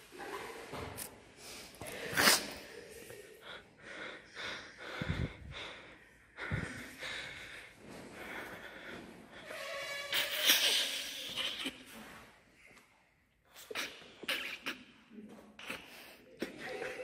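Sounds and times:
breathy human sounds: 1.4s - 17.0s.

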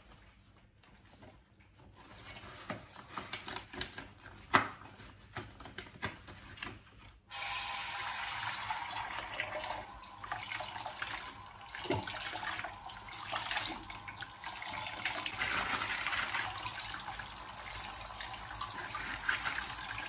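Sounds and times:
tap water running into sink: 7.3s - 20.0s.

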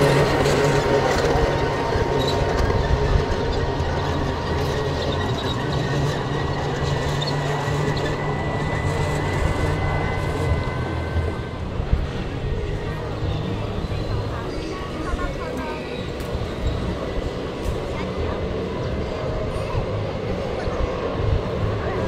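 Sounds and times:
miniature train low hum: 0.0s - 22.0s
wheels clicking on track: 0.0s - 22.0s
thin high whine: 5.0s - 12.3s.

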